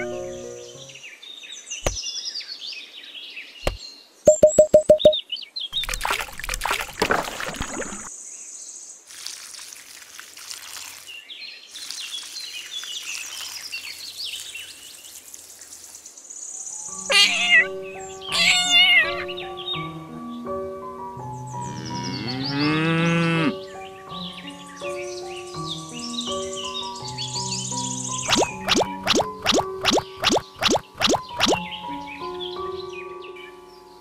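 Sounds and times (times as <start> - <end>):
birds chirping: 3.6 - 8.1, 17.0 - 20.4, 21.5 - 22.8, 23.6 - 33.2
quick short beeping tones: 4.3 - 5.2
water splashing from watering can: 5.8 - 8.1, 9.1 - 16.0, 28.3 - 31.6.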